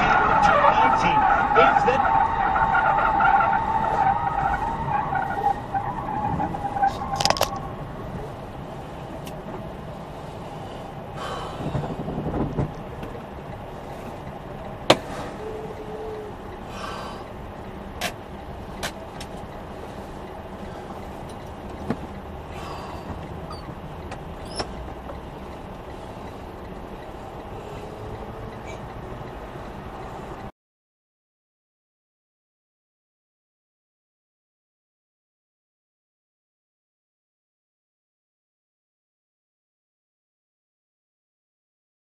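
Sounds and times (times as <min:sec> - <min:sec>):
tyre squeal: 0:00.0 - 0:08.4, 0:22.6 - 0:23.8, 0:24.4 - 0:24.8, 0:27.7 - 0:29.0
road and engine noise: 0:00.0 - 0:30.6.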